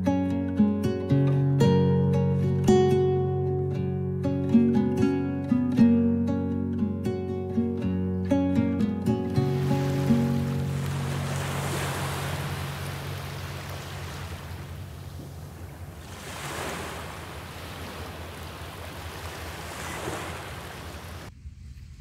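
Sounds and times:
sea waves washing onto shore: 9.2 - 21.3
low wind rumble: 11.0 - 22.0.

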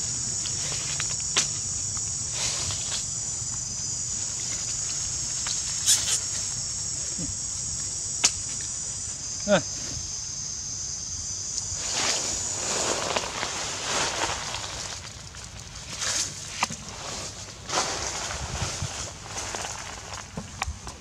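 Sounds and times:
high-pitched insect chorus: 0.0 - 21.0
dry leaves crackling: 11.6 - 20.7.

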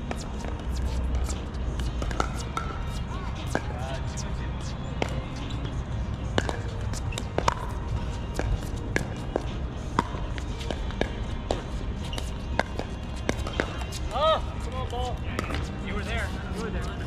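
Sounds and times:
paddles hitting ball: 0.1 - 3.8, 6.2 - 14.0.

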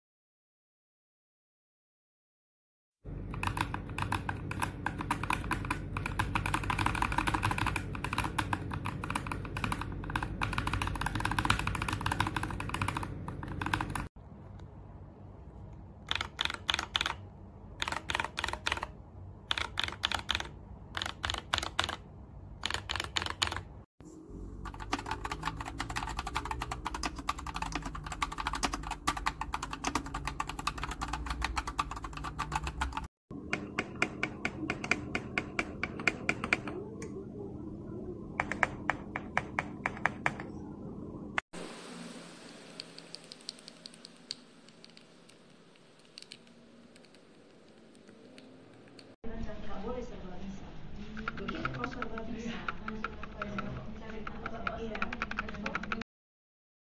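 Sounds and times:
typing on mechanical keyboard: 3.1 - 14.1, 16.0 - 17.2, 17.8 - 22.0, 22.6 - 23.7, 24.6 - 36.8, 38.4 - 40.5, 51.2 - 56.0.

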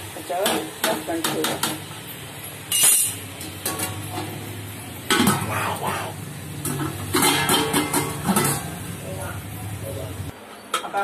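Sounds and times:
steel lid clanking on metal pot: 2.7 - 4.3, 6.6 - 8.8.

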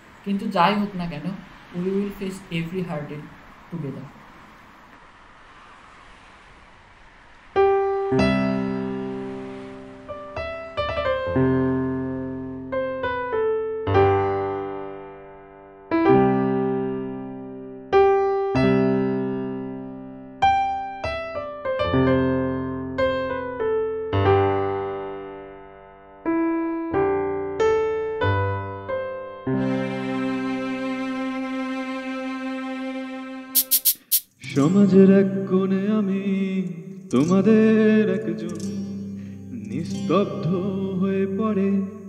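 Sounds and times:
slow solo piano: 7.6 - 29.4.

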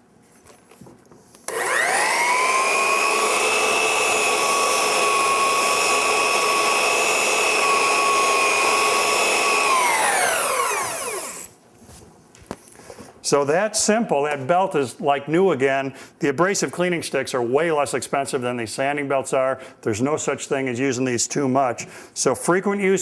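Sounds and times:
belt sander whining: 1.5 - 11.5.

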